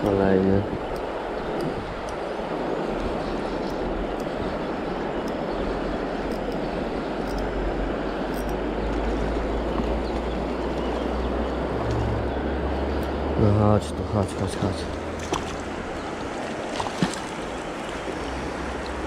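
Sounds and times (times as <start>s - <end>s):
wind rumble on microphone: 0.0s - 13.5s
shallow river current rushing: 0.0s - 19.0s.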